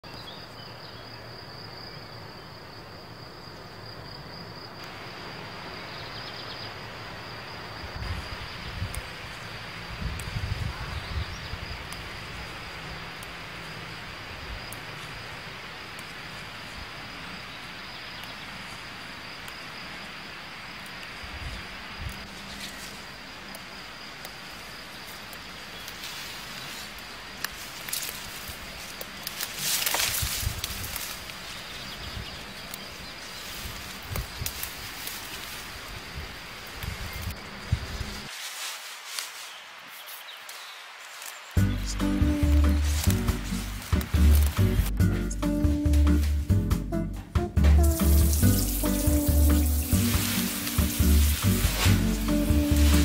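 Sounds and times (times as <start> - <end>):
insects trilling: 0.0 - 45.7, 47.8 - 53.0
soft hiss: 47.8 - 53.0.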